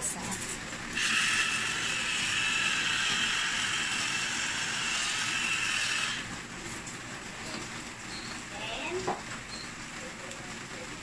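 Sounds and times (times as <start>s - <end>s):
salt grinder grinding: 1.0s - 6.2s.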